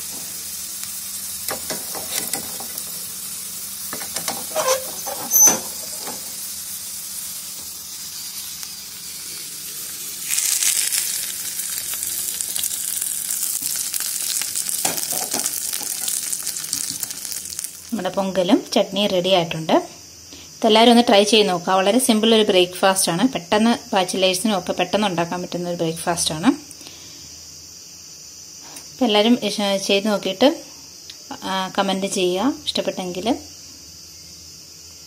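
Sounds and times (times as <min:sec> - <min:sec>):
spices sizzling in hot oil: 0:00.0 - 0:19.6
hot oil hissing on chutney: 0:00.0 - 0:25.5.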